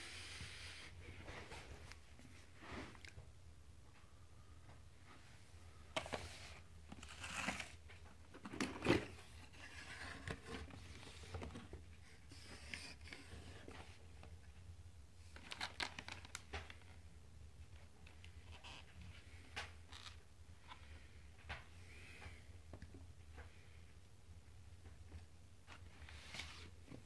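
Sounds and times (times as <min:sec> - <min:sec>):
plastic bag and cardboard crinkling: 0:06.0 - 0:11.7.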